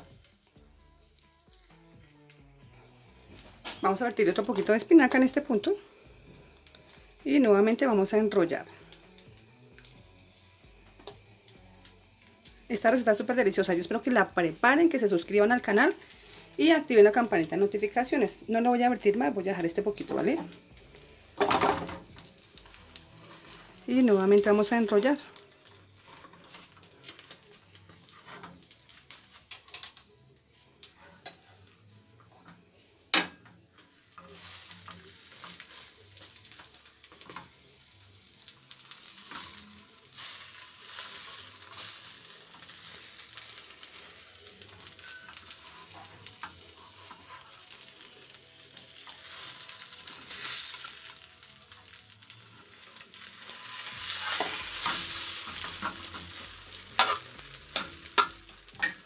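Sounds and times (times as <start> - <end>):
omelette sizzling in a frying pan: 0.0 - 59.0
spatula scraping a pan: 22.3 - 29.9, 30.8 - 32.5, 33.1 - 51.2, 51.9 - 59.0.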